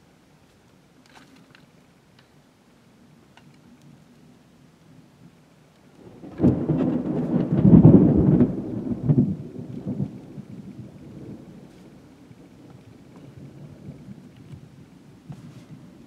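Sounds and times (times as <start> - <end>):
thunder clap and rumble: 6.0 - 16.0.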